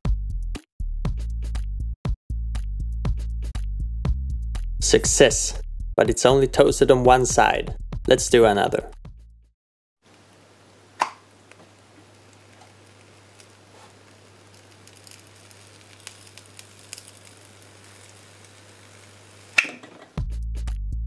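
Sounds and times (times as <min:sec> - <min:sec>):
bread sizzling and crackling: 0:10.1 - 0:20.2.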